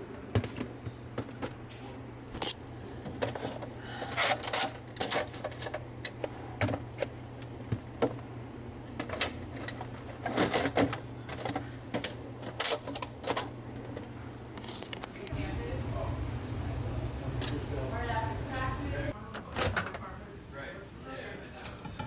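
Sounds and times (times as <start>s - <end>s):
steady low hum: 0.0s - 22.0s
plastic containers clattering: 9.0s - 14.0s.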